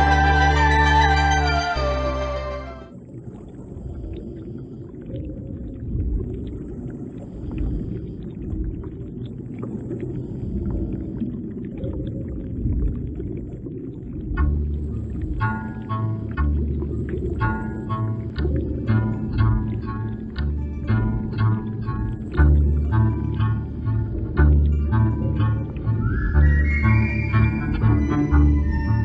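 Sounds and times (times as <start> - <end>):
music: 0.0 - 2.9, 14.4 - 29.0
muffled underwater rumble: 2.9 - 29.0
crackling clicks underwater: 3.1 - 20.5.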